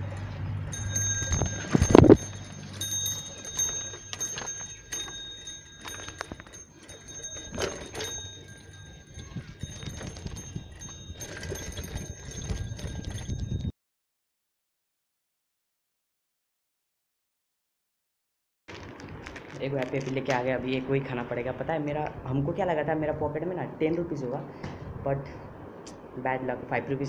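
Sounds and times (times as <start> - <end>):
bicycle rattling on bumpy path: 0.0 - 13.7, 18.7 - 21.6
bicycle bell ringing faintly: 0.7 - 13.7.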